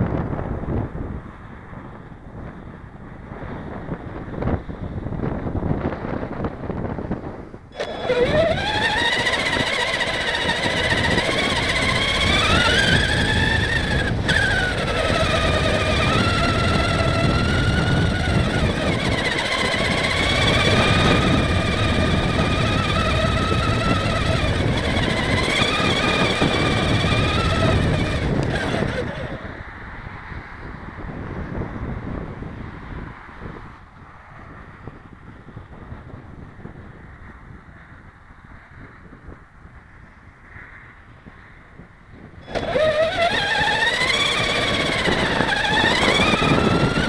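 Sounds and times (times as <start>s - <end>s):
electric motor and gearbox whining: 7.7s - 29.6s, 42.4s - 47.0s.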